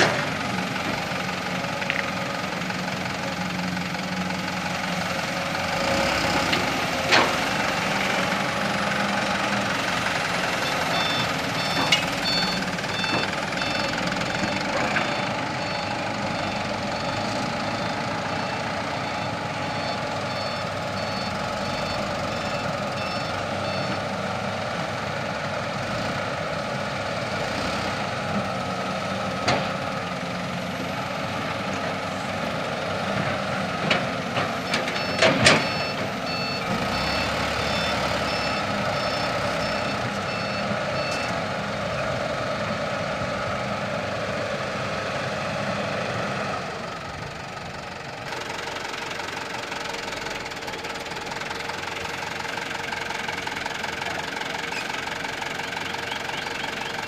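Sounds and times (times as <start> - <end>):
diesel truck engine running: 0.0 - 57.0
reversing alarm beeps: 10.6 - 24.0, 34.7 - 41.4.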